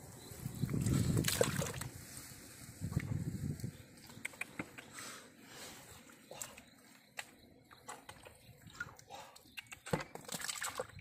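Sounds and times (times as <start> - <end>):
water drips and splashes: 0.7 - 1.9, 7.7 - 11.0.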